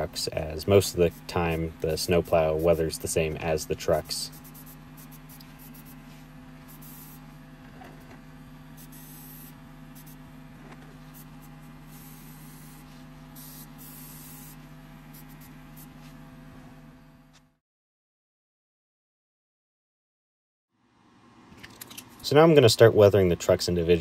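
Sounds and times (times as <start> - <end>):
low even hum: 0.0 - 17.6
airbrush air hiss: 0.6 - 3.1, 3.8 - 7.4, 8.7 - 10.3, 11.0 - 16.2.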